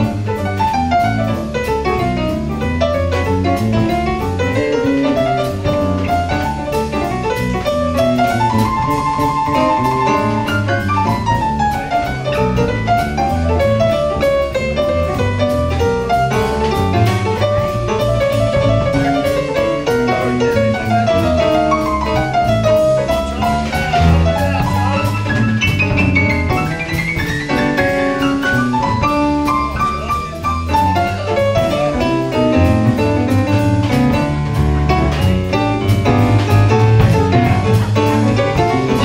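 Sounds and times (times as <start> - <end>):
instrumental jazz combo playing: 0.0 - 39.0.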